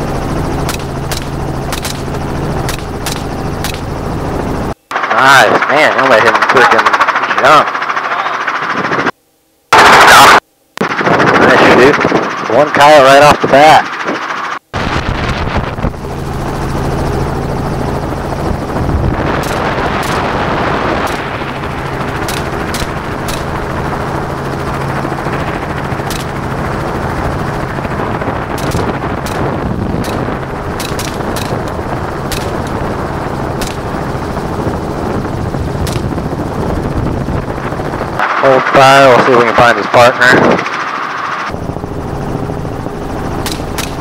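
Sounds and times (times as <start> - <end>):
helicopter running: 0.0 - 44.0
gunshots: 0.6 - 2.1, 2.7 - 3.8, 9.8 - 10.4, 19.3 - 21.6, 22.2 - 23.6, 26.1 - 26.4, 28.5 - 32.9, 33.6 - 33.9, 35.8 - 36.2, 43.4 - 44.0.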